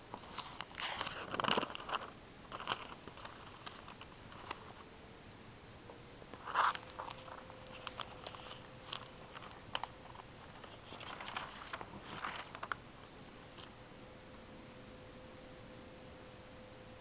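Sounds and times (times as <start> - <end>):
faint steady hum: 0.0 - 17.0
newspaper pages rustling: 0.1 - 4.9, 6.4 - 12.9.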